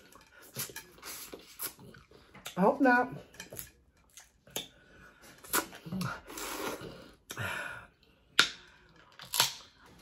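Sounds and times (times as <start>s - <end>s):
person eating with sucking sounds: 0.0s - 2.6s, 3.5s - 8.4s.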